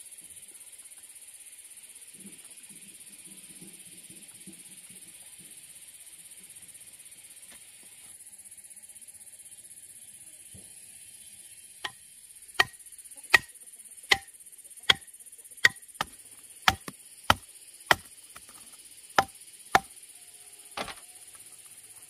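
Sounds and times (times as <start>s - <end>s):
blade chopping: 15.6s - 18.6s, 19.2s - 19.9s.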